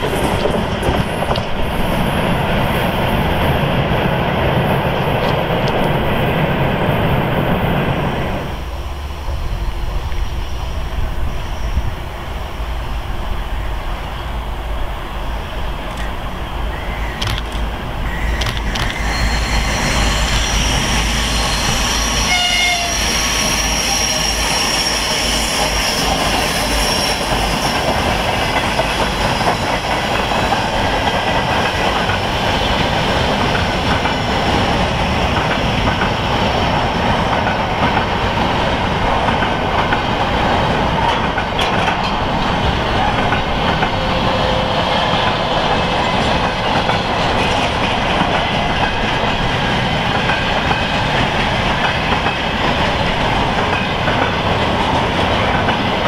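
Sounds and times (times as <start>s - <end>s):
steel wheels on rails: 14.9s - 56.0s.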